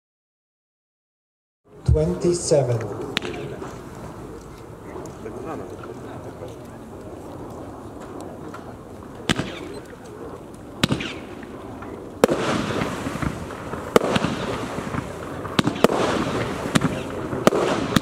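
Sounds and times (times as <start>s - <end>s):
fireworks reports: 1.8s - 18.0s
crackle of bursting stars: 2.9s - 18.0s.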